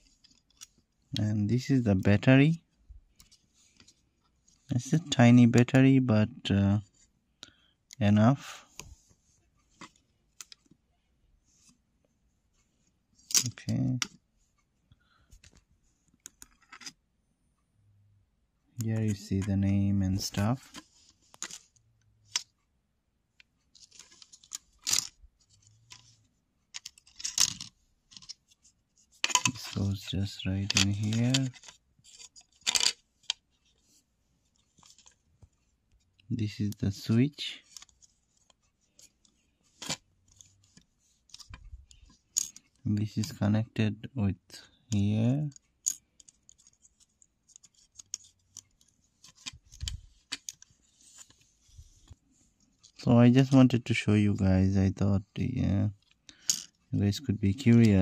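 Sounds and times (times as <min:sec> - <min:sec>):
plastic parts clicking and scraping: 0:00.0 - 0:00.8, 0:09.6 - 0:10.8, 0:15.3 - 0:17.0, 0:18.8 - 0:22.6, 0:23.4 - 0:43.4, 0:44.9 - 0:53.6, 0:55.9 - 0:58.0.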